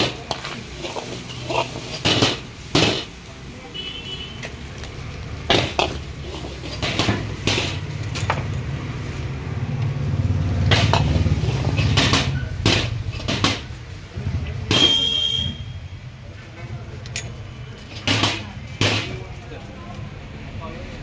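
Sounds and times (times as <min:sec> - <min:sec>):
gas burner rush: 0:00.0 - 0:03.6, 0:04.4 - 0:15.6.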